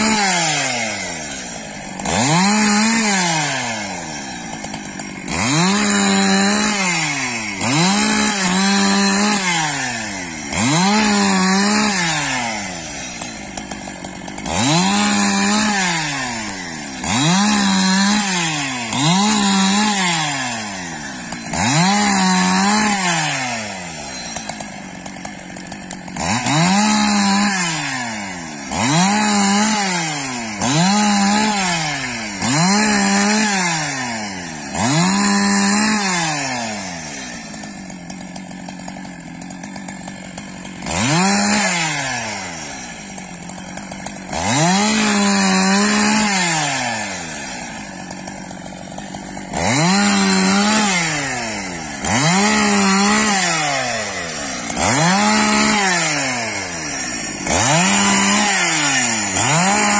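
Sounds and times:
chainsaw cutting poles: 0.0 - 59.9.

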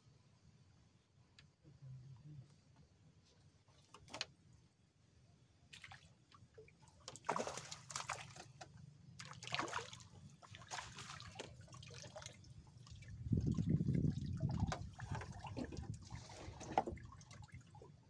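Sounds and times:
fish splashing in water: 7.1 - 8.5, 9.2 - 12.4.

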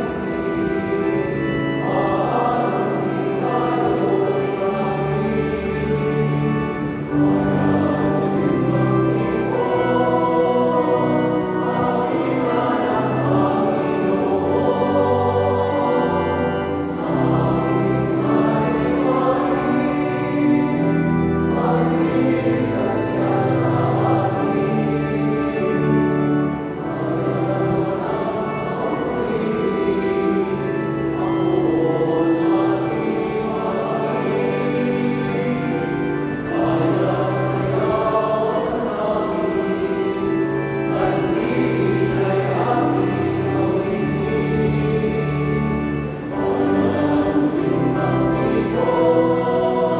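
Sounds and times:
choir singing a hymn: 0.0 - 49.9.

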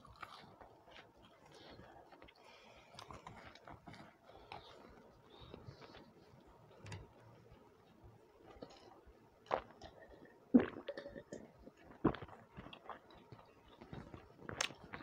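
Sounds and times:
chewing and mouth sounds: 0.0 - 6.4, 8.4 - 15.0
man gulping water: 9.8 - 12.3.

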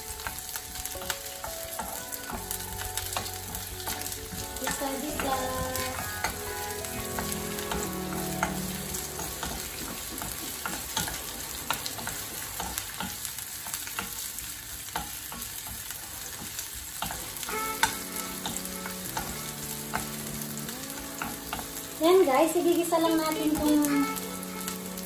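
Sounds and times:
food sizzling in oil: 0.0 - 25.0.

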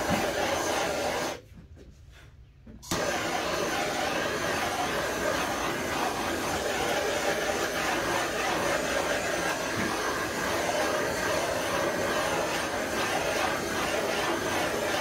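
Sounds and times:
gas torch flame hissing: 0.0 - 1.4, 2.9 - 15.0.

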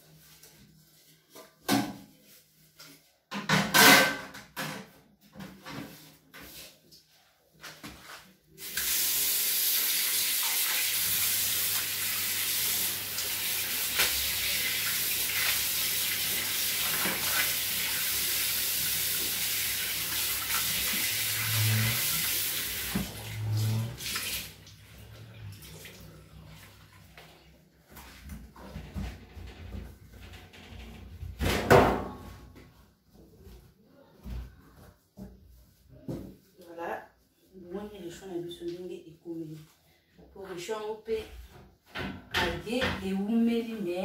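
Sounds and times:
tap running into a sink: 18.2 - 24.5.

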